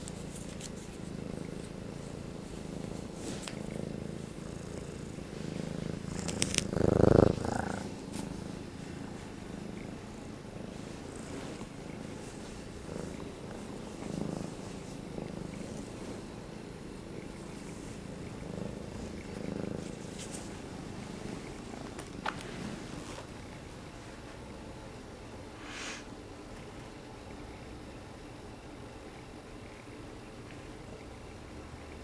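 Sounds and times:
kitten purring: 0.0s - 24.0s.

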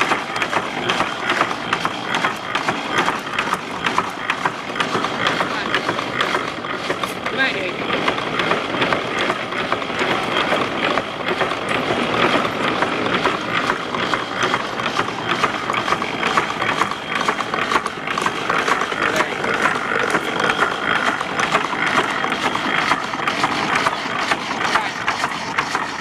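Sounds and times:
clattering gears and shaft: 0.0s - 26.0s.

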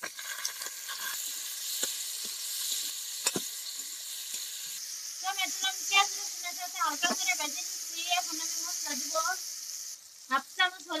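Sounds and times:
tomatoes sizzling in hot oil: 0.0s - 11.0s.

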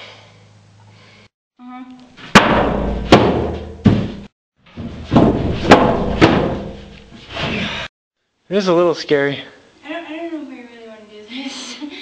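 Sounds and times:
heavy thumps with ringing: 2.3s - 7.0s.

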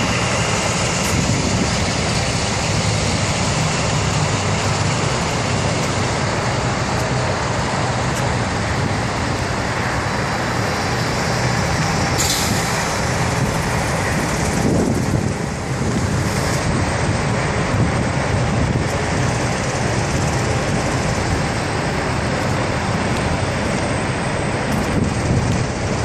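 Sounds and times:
loud hiss: 0.0s - 16.9s
diesel engine idling: 0.0s - 26.0s.

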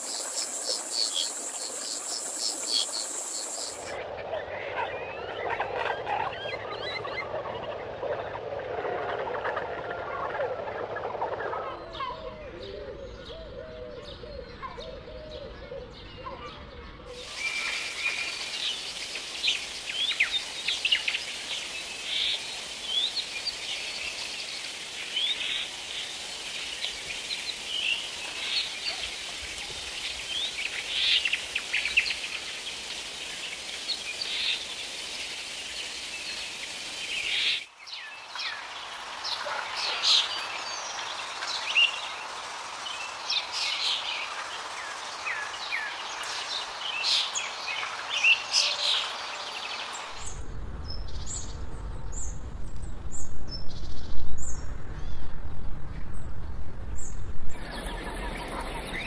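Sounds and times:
forest ambience hiss: 0.0s - 4.0s, 17.1s - 55.2s, 57.0s - 59.0s.

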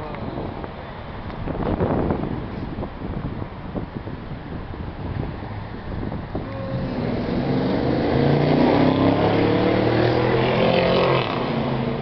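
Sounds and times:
street traffic noise: 0.0s - 12.0s
vehicle engine passing close: 5.5s - 12.0s.

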